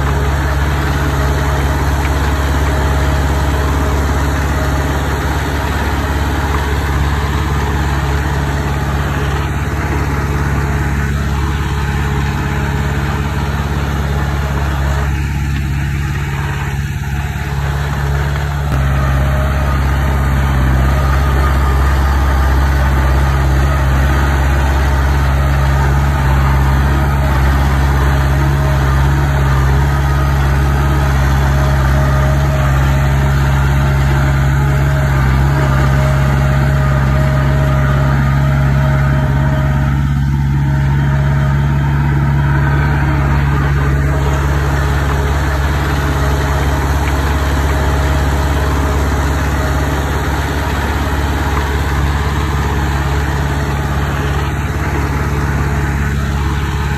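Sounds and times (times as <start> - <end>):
heavy diesel engine running: 0.0 - 56.9.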